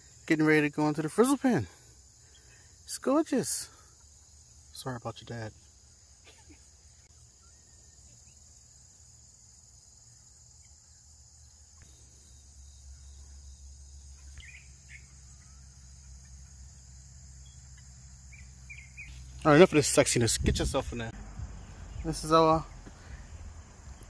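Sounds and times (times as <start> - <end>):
insect chorus chirring: 0.0 - 24.0
low rumble on microphone: 20.3 - 24.0.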